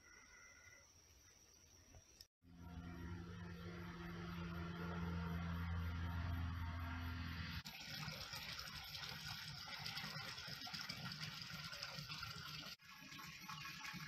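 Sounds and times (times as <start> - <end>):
low mechanical hum: 2.4 - 7.6.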